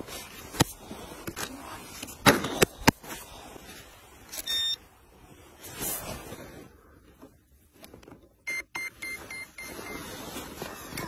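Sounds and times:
short electronic beep: 0:08.5 - 0:10.1.

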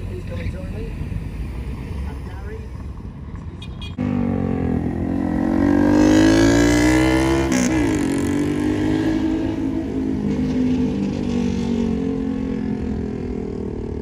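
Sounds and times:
vehicle engine revving: 0:03.8 - 0:14.0.

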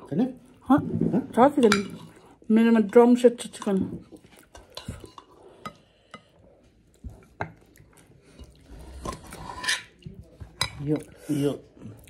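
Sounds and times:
cutlery scraping a ceramic plate: 0:01.4 - 0:06.4, 0:08.4 - 0:10.0.

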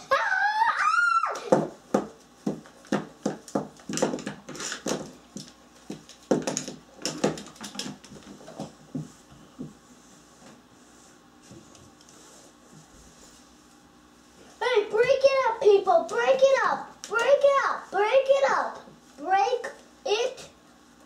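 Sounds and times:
plastic dolls knocking on wooden floor: 0:01.5 - 0:09.1.

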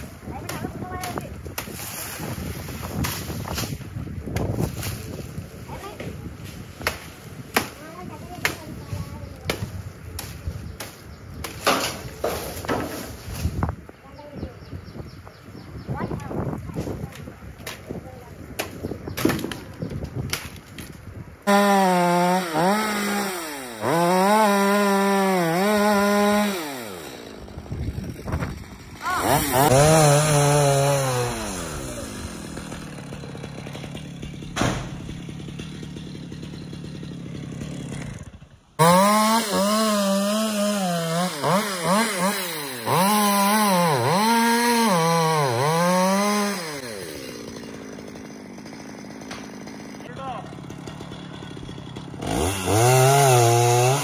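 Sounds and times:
chainsaw revving: 0:21.4 - 0:54.0.

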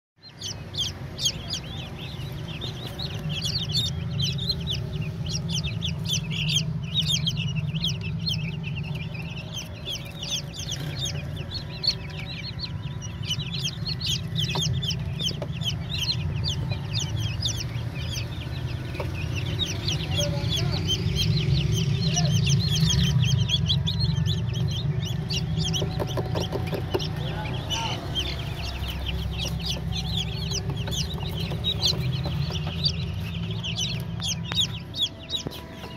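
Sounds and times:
chicks peeping: 0:00.2 - 0:35.9
steady low hum: 0:00.3 - 0:35.9.

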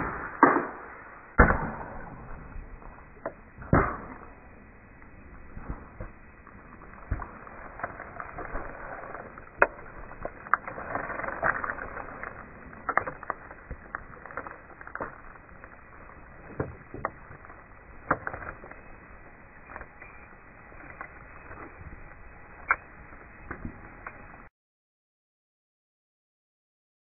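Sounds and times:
sharp cracks and knocks: 0:00.0 - 0:18.9
rustling: 0:03.9 - 0:24.5.

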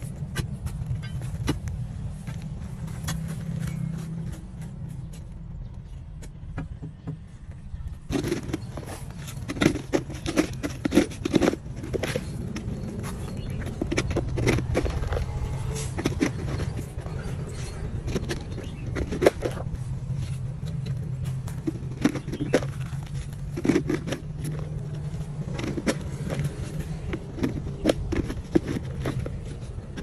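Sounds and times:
steady low rumble: 0:00.0 - 0:06.6, 0:07.2 - 0:30.0
dirt and stones clattering: 0:08.0 - 0:30.0
hoe scraping soil: 0:08.1 - 0:30.0.

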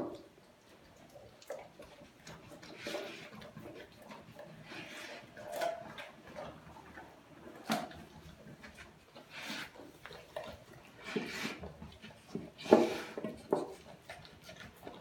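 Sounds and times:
dog chewing and crunching: 0:00.0 - 0:15.0
metal bowl scraping on tile: 0:11.0 - 0:11.6, 0:12.6 - 0:13.8.

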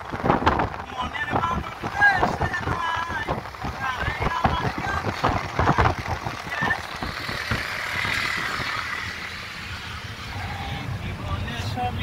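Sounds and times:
car road and wind noise: 0:00.0 - 0:12.0.

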